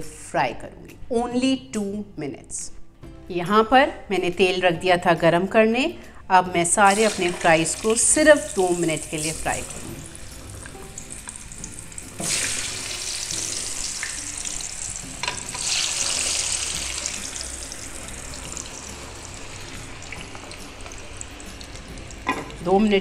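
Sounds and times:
potatoes sizzling in hot oil: 6.8s - 23.0s.

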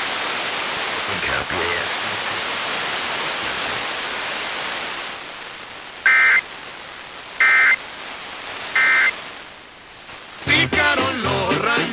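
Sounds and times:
steady hiss: 0.0s - 11.9s
digital data tone bursts: 6.0s - 6.4s, 7.4s - 7.8s, 8.7s - 9.2s.

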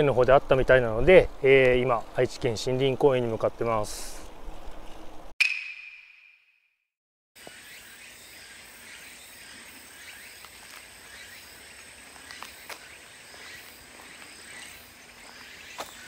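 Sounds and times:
insects chirring: 7.4s - 16.0s.

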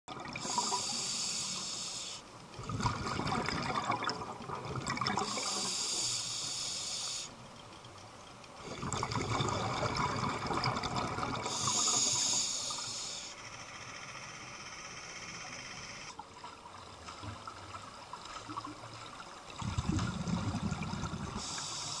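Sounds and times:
exhale bubbling rush: 0.2s - 7.3s, 8.6s - 13.3s, 19.6s - 22.0s
diver inhaling through regulator hiss: 0.4s - 2.3s, 5.2s - 7.4s, 11.4s - 13.4s, 21.3s - 22.0s.

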